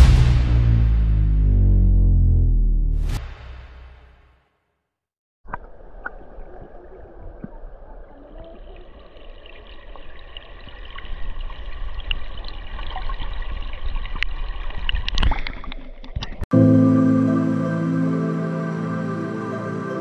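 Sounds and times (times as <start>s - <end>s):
water running in a stream: 5.5s - 16.4s.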